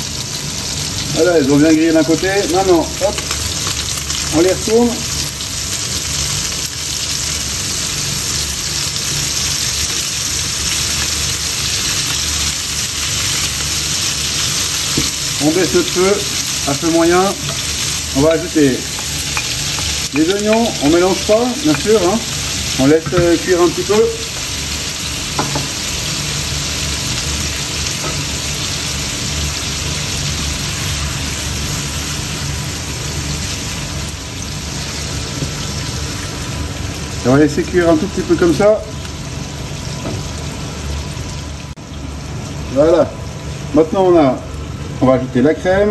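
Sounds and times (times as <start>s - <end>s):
chicken sizzling in frying pan: 0.0s - 45.9s.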